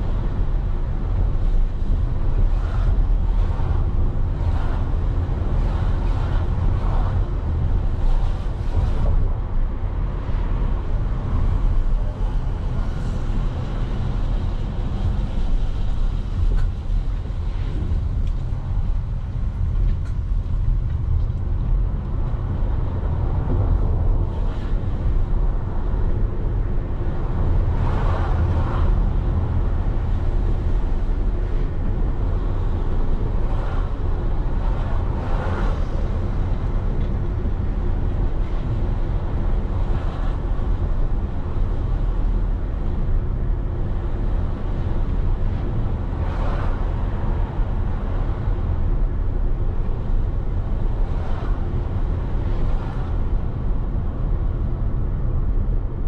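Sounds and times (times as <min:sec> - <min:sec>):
vehicle road noise rumble: 0:00.0 - 0:56.0.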